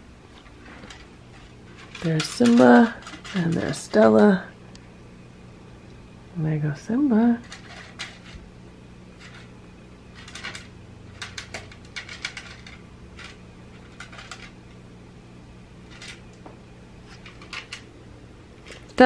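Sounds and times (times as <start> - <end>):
faint low hum: 0.0 - 19.0
cats crunching dry kibble: 7.4 - 8.4, 10.2 - 14.8, 17.1 - 17.9.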